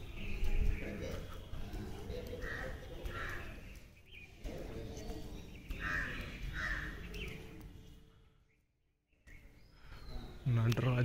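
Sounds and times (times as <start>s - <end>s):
crow cawing: 2.4s - 3.6s, 5.8s - 7.0s.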